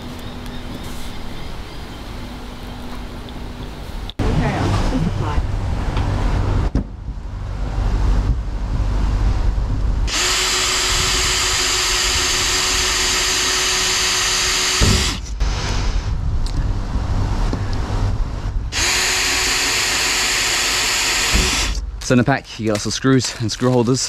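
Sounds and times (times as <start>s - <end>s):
cordless drill boring: 10.1s - 15.4s, 18.7s - 21.8s.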